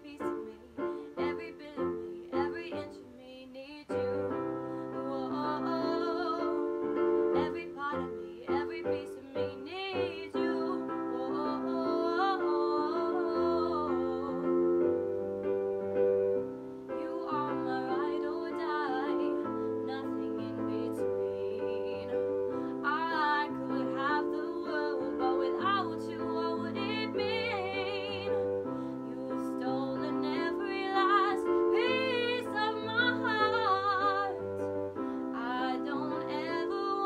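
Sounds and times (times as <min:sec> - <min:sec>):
woman singing with vibrato: 0:00.0 - 0:15.0, 0:16.8 - 0:37.0
piano chords: 0:00.0 - 0:37.0.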